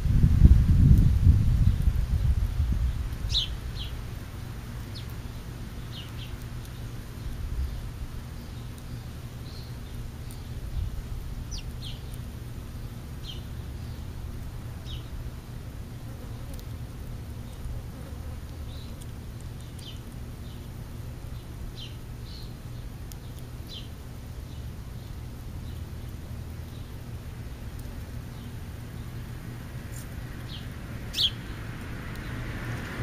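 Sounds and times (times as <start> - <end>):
steady low rumble: 0.0 - 15.9.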